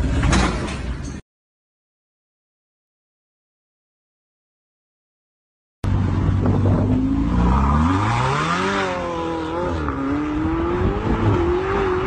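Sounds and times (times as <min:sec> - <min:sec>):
sports car engine revving: 0:05.9 - 0:12.0.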